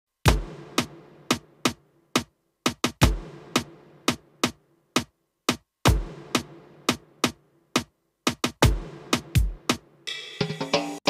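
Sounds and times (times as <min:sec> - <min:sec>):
deep kick drum: 0:00.3 - 0:00.9, 0:02.7 - 0:03.7, 0:05.9 - 0:06.5, 0:08.3 - 0:09.8
electronic snare and tom hits: 0:00.3 - 0:11.0.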